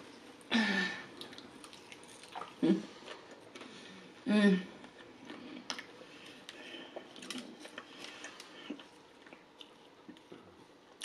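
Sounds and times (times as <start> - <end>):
chewing crispy fried chicken: 4.9 - 11.0.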